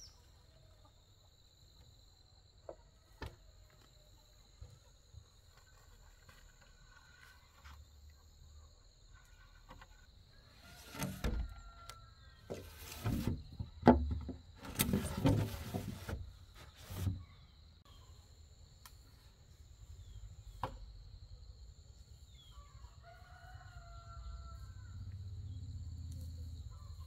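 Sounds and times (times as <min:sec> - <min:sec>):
scraping and rustling: 0:09.2 - 0:11.6, 0:12.4 - 0:17.4.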